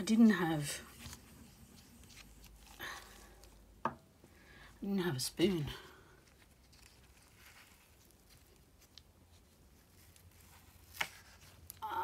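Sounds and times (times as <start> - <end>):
paper rubbing and handling: 0.6 - 2.8, 6.2 - 11.8.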